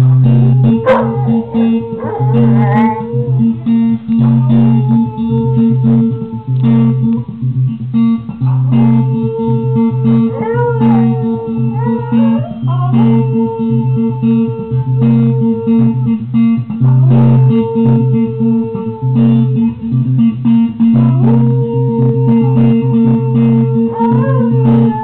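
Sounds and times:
dog howling: 0:00.0 - 0:07.3, 0:08.4 - 0:19.8, 0:20.8 - 0:25.0
electric guitar: 0:00.0 - 0:25.0.

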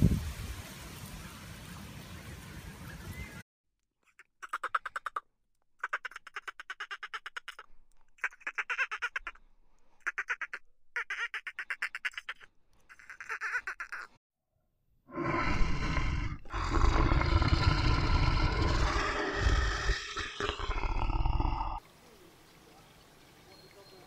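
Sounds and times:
deep monster roar: 0:15.1 - 0:21.8.

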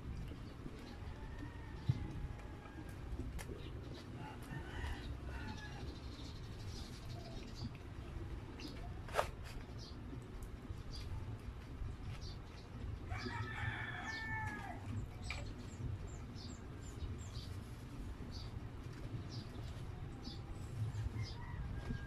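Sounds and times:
rooster crowing: 0:04.2 - 0:05.8, 0:13.1 - 0:14.9.

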